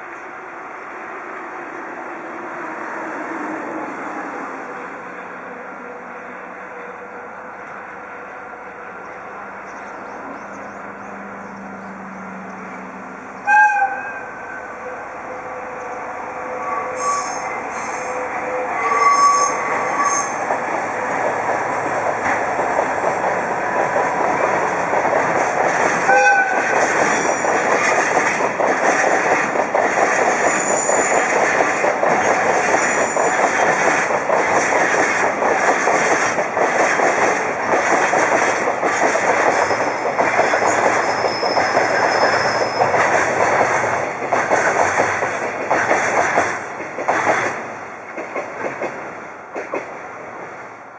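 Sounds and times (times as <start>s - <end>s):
diesel locomotive running: 0.0s - 50.9s
train horn toot: 13.4s - 20.4s, 26.1s - 26.7s
faint wheel squeal: 41.0s - 43.0s.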